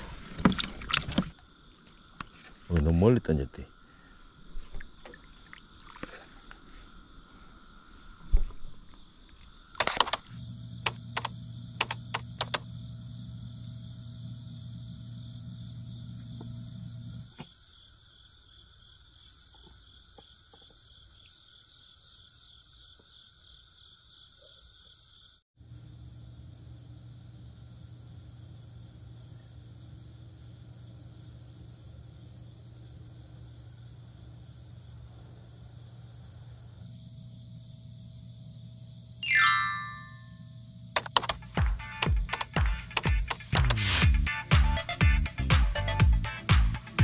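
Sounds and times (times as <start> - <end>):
frogs and insects calling: 0.0 - 25.4
sharp clicks: 9.8 - 10.2, 10.8 - 12.6, 41.0 - 43.9.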